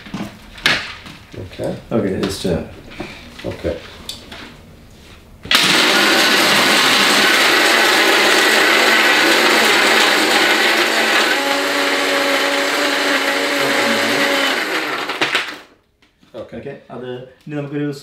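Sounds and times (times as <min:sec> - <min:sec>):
blender crushing ice: 0:05.5 - 0:15.8.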